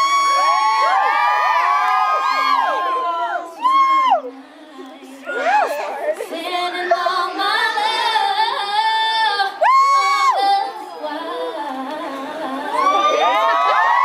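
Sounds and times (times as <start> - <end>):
woman singing unaccompanied: 3.4 - 13.5.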